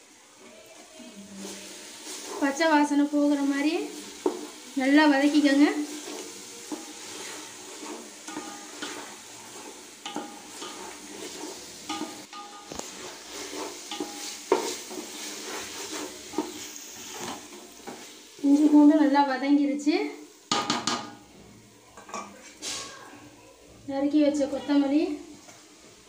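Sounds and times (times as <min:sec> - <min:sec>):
frying sizzle: 0:00.0 - 0:26.0
wooden spatula scraping metal pot: 0:01.4 - 0:19.0.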